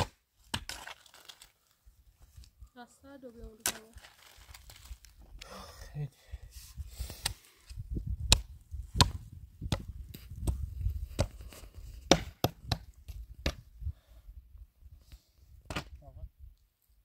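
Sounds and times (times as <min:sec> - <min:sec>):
sharp chopping strikes: 0:08.3 - 0:09.8, 0:12.1 - 0:12.8.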